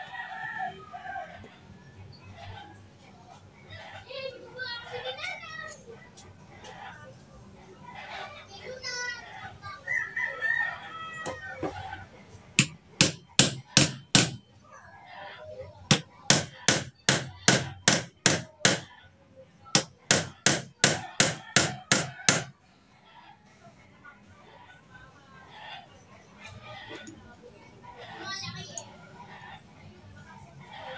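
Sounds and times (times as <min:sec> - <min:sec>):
hammer striking metal: 0:12.6 - 0:14.4, 0:15.9 - 0:18.9, 0:19.8 - 0:22.5.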